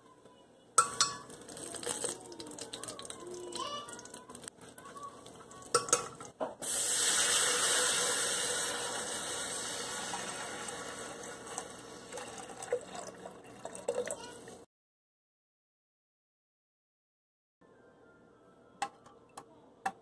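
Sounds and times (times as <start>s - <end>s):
pot stirring knocks: 0.8s - 1.4s, 5.7s - 6.6s
water pouring into metal pot: 0.8s - 14.6s.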